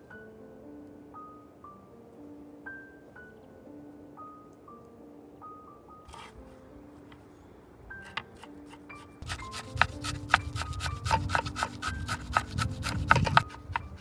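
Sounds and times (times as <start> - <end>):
knife chopping on wooden board: 8.1 - 14.0.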